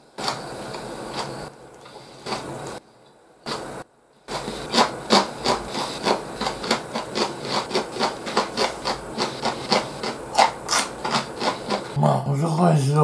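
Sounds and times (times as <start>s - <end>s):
person chewing crunchy food: 0.2s - 2.8s, 4.3s - 12.0s.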